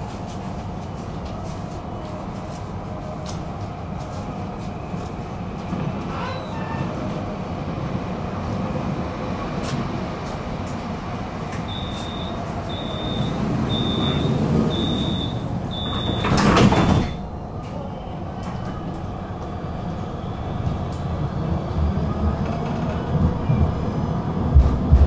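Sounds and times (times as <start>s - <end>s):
tram running rumble: 0.0s - 25.0s
tram doors sliding shut: 3.0s - 25.0s
short high warning beeps: 11.7s - 17.2s.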